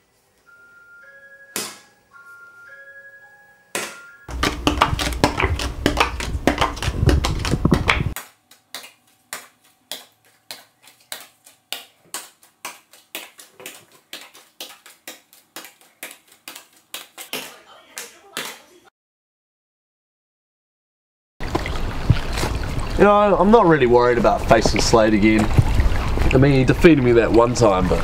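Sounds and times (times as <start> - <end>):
playing cards slapping a tabletop: 3.8 - 17.6.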